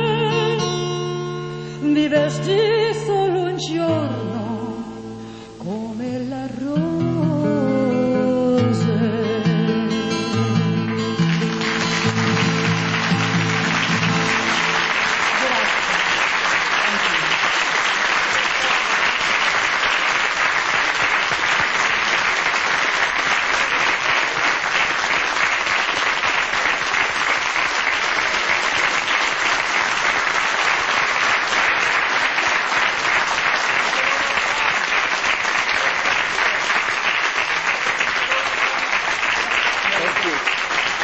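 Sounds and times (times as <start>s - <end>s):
studio audience applauding: 10.6s - 41.0s.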